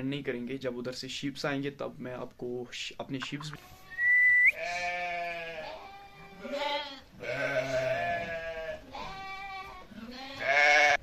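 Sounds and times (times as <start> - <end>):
sheep bleating: 3.4 - 11.0.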